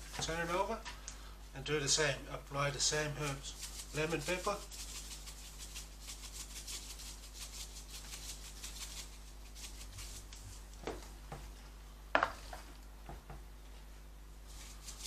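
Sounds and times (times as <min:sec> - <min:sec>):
seasoning shaker rattling: 0:02.8 - 0:10.8, 0:14.5 - 0:15.0.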